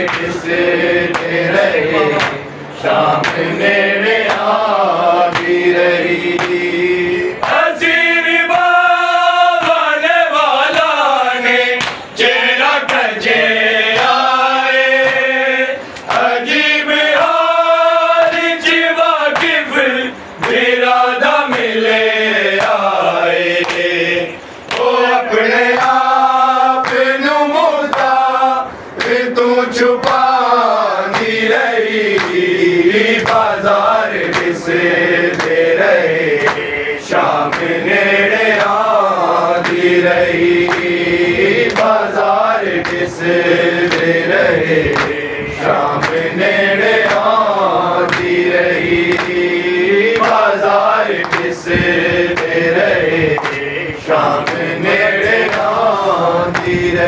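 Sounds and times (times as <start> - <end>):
men chanting in unison: 0.0 - 57.0.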